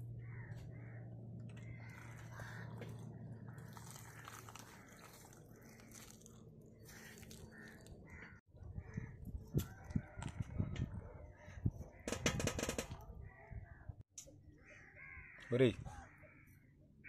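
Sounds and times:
plastic sachets crackling and bursting: 3.5s - 8.1s.

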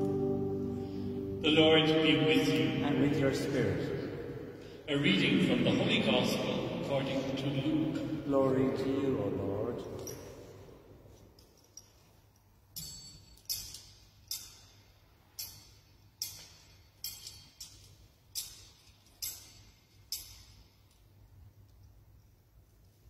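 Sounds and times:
faint sharp ringing clinks: 10.0s - 21.3s.

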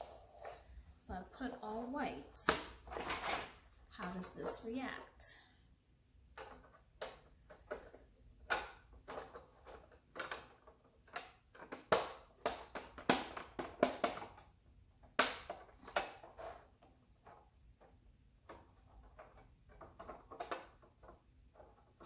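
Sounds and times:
plastic pieces clicking and knocking: 6.3s - 22.0s.

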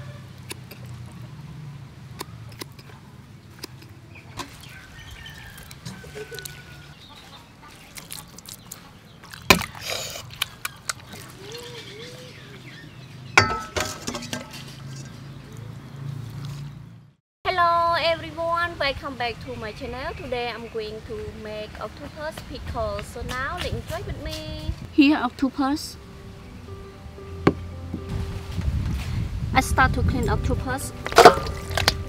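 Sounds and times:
faint birdsong: 0.0s - 13.8s, 19.4s - 22.3s, 25.1s - 28.1s
scissors snipping: 0.4s - 1.0s, 2.2s - 3.0s, 3.6s - 4.0s
utensil clinking against metal pot: 13.4s - 15.2s, 31.0s - 32.0s
utensils clattering: 13.4s - 15.3s, 31.0s - 32.0s.

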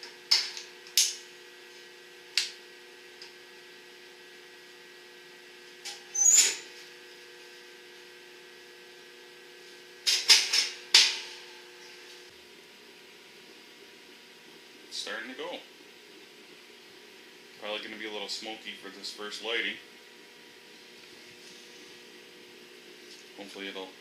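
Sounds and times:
heater knocking and scraping: 0.0s - 3.4s, 9.6s - 12.3s
faint steady hum: 0.0s - 24.0s.

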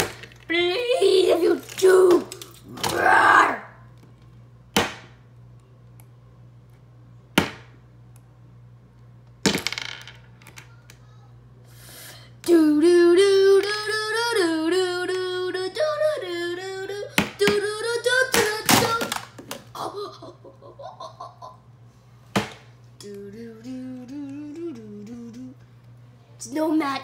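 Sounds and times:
person humming tune: 23.0s - 25.6s
person singing wordless tune: 23.0s - 25.7s.

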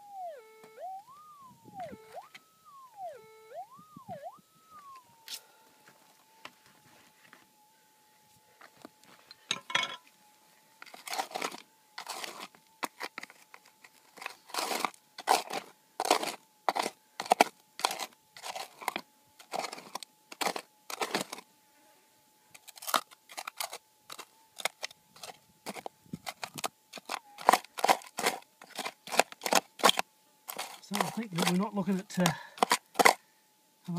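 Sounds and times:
faint steady high tone: 0.0s - 14.5s
pick scraping gravelly dirt: 10.8s - 21.5s, 22.5s - 33.2s.

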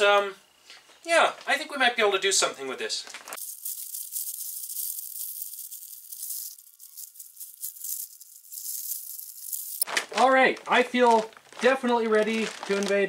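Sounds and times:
plastic suit crinkling: 4.8s - 13.0s.

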